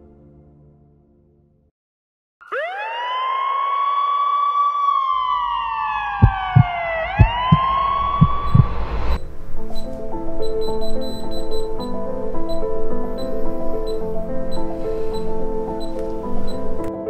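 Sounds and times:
ambulance siren wailing: 2.4 - 9.1
low thumps: 6.2 - 10.0.

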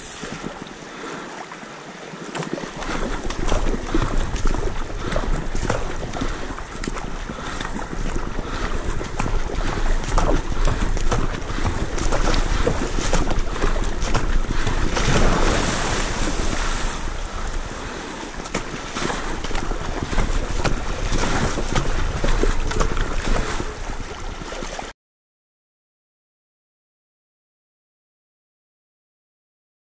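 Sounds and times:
water splashing along a hull: 0.0 - 24.9
wind buffeting microphone: 2.5 - 24.8.

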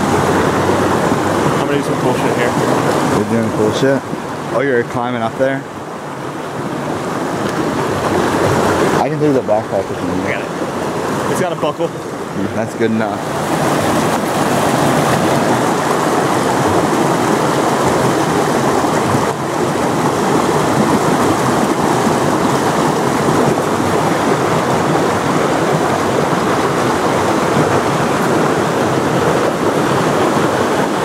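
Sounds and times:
stream water rushing: 0.0 - 31.0.

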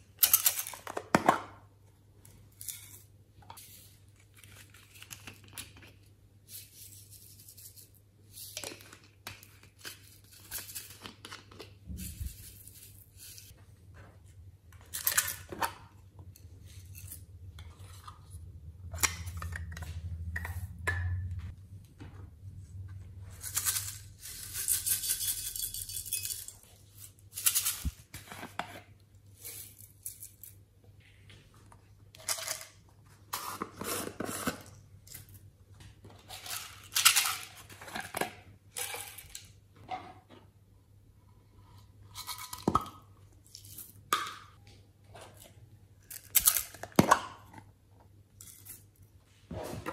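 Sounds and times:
glitter rattling in shaker bottles: 23.3 - 27.9.

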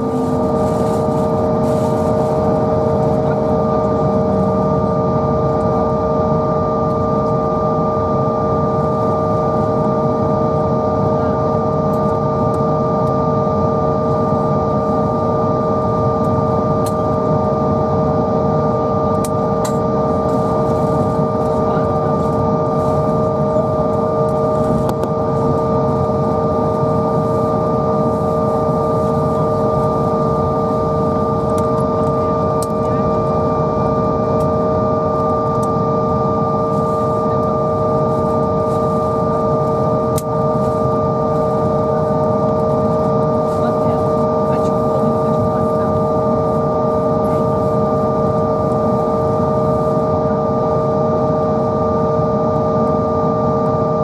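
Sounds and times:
steady rumble: 0.0 - 6.5
jet engines whining at idle: 0.0 - 54.0.

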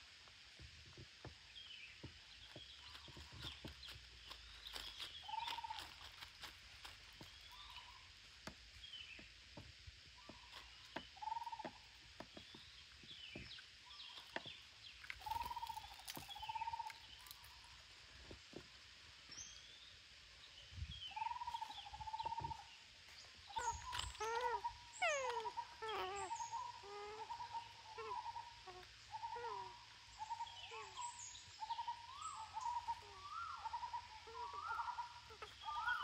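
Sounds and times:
parakeets whistling and chirping: 31.8 - 36.0.

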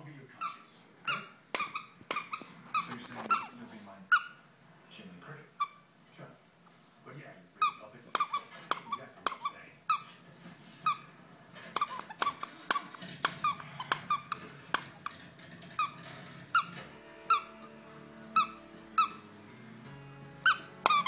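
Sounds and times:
squeaky dog toy squeaking: 0.3 - 4.5, 5.6 - 5.9, 7.6 - 10.1, 10.8 - 17.6, 18.4 - 19.3, 20.4 - 21.0.

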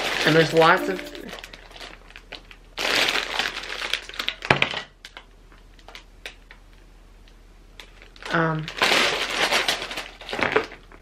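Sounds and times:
plastic bags crinkling: 0.0 - 0.6, 1.4 - 4.5, 7.9 - 10.9.

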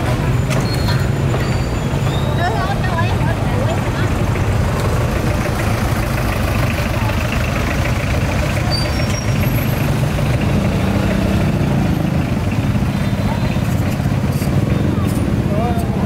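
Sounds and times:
engine idling: 0.0 - 16.0
chatter of many voices: 12.9 - 16.0.

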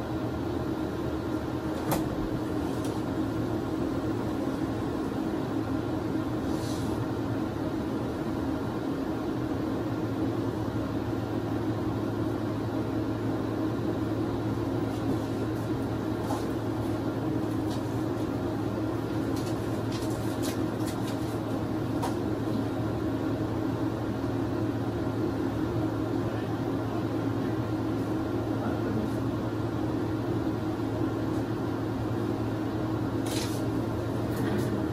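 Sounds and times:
low machine hum: 0.0 - 34.9.

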